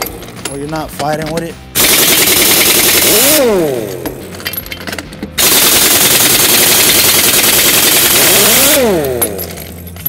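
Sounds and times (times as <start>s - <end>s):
pneumatic impact wrench hammering: 0.0s - 10.0s.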